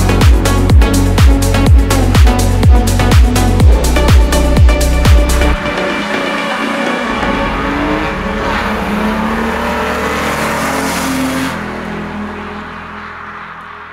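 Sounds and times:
car engine accelerating past: 5.6 - 13.9.

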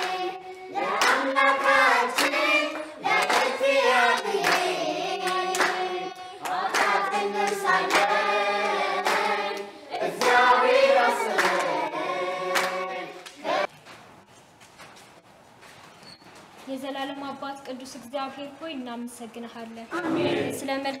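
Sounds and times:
children singing together: 0.0 - 13.7
hand claps: 0.8 - 11.9, 12.5 - 13.4.

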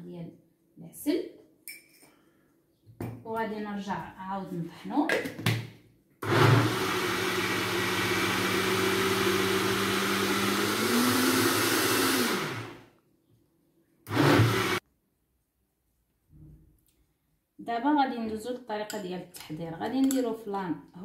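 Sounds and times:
electric blender running: 6.2 - 12.8, 14.1 - 14.8.

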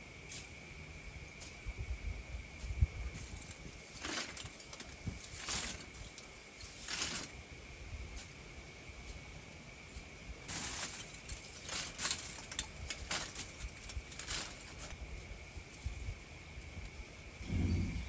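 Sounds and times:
insects droning: 0.0 - 18.0
charcoal clattering and rustling: 3.1 - 7.4, 10.5 - 15.9.

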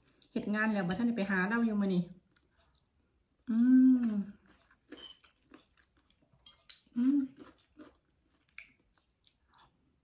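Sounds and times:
soft chewing: 2.2 - 10.0
woman humming mmm: 3.5 - 4.4, 7.0 - 7.4.

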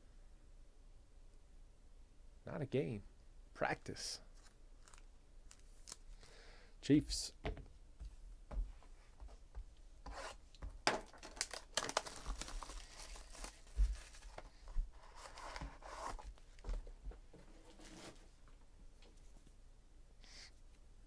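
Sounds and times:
plastic wrapping crinkling: 4.4 - 6.2, 10.9 - 15.4.

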